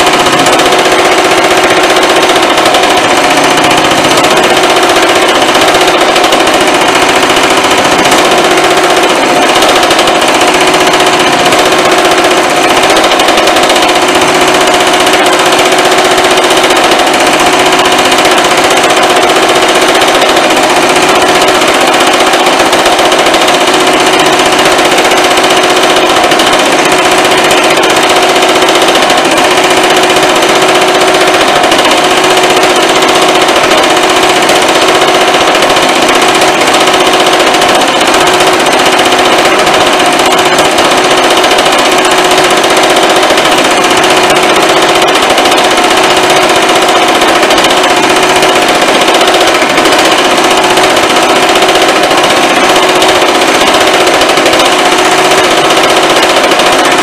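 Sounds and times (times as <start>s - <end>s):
power hammer pounding steel panel: 0.0s - 57.0s.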